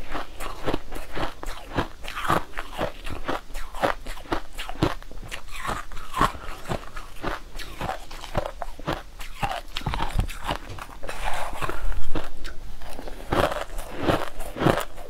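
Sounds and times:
ice crunched between teeth: 0:00.1 - 0:15.0.

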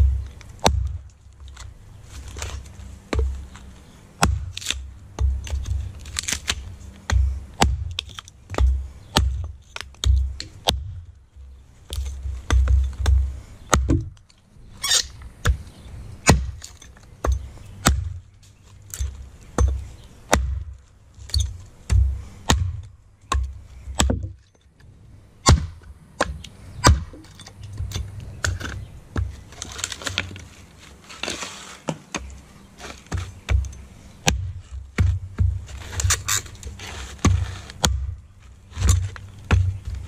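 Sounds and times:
hatchet chopping log: 0:00.0 - 0:01.7, 0:03.1 - 0:11.1, 0:11.9 - 0:14.3, 0:14.9 - 0:24.4, 0:25.4 - 0:30.3, 0:31.9 - 0:40.0
wood chips tearing loose: 0:05.5 - 0:07.0, 0:27.2 - 0:31.9, 0:35.7 - 0:40.0.

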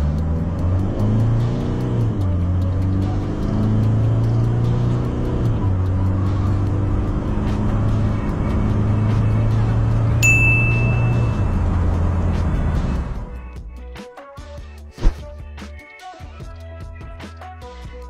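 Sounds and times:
truck engine accelerating hard: 0:00.0 - 0:13.5.

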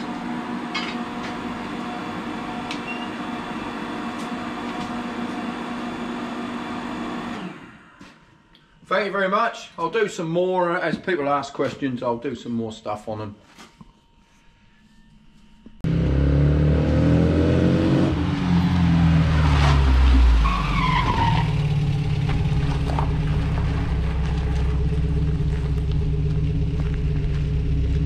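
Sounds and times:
sports car engine revving: 0:15.8 - 0:28.0
high descending squeal: 0:18.0 - 0:22.1
car engine idling: 0:21.2 - 0:28.0.

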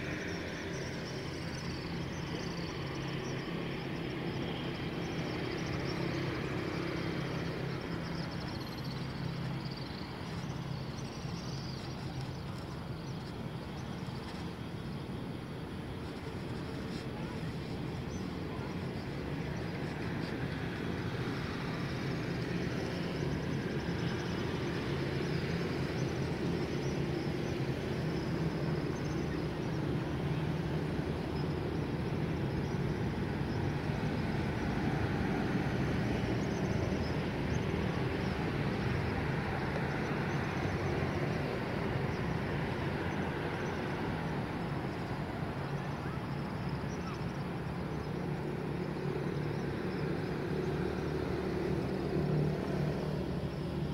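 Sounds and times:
road traffic rumble: 0:00.0 - 0:53.9.

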